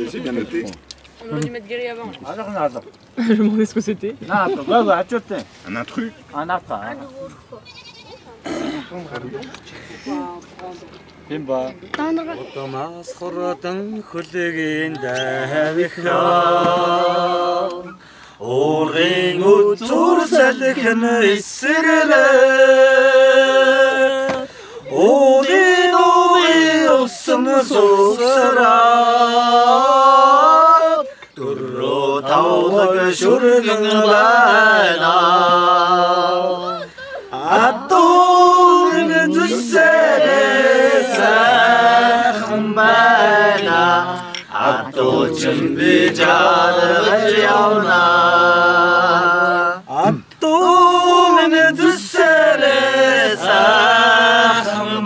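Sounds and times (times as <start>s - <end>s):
men singing unaccompanied: 13.0s - 55.0s.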